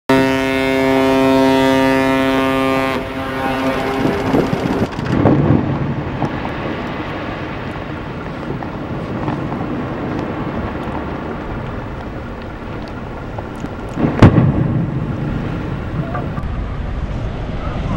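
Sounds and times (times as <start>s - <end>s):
deep ship's horn blast: 0.1s - 4.8s
wind: 0.1s - 17.9s
sea ice breaking against hull: 2.5s - 17.0s.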